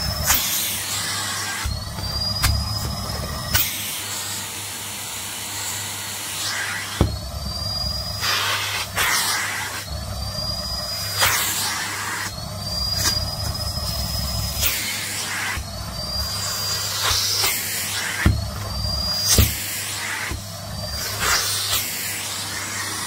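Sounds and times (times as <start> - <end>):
vacuum cleaner running: 0.0 - 23.0
thin rising whistle: 0.9 - 3.6, 6.4 - 21.3.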